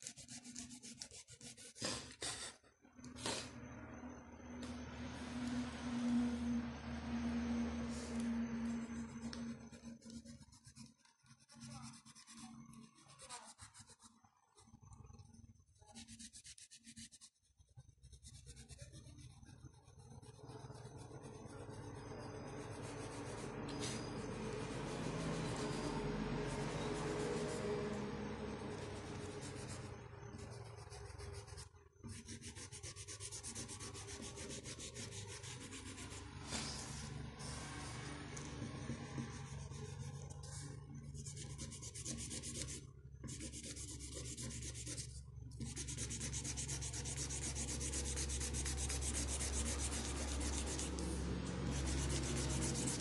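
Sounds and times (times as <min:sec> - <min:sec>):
fingers rubbing pastel on paper: 0:00.0 - 0:02.5, 0:09.7 - 0:14.2, 0:15.8 - 0:23.5, 0:28.7 - 0:38.0, 0:38.7 - 0:53.0
louder scrape on paper: 0:00.0 - 0:02.6, 0:38.8 - 0:53.0.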